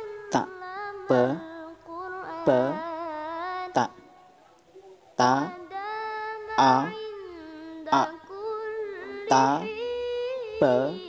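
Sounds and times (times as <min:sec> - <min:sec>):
person chanting syllables: 0:00.0 - 0:04.2, 0:05.1 - 0:11.0.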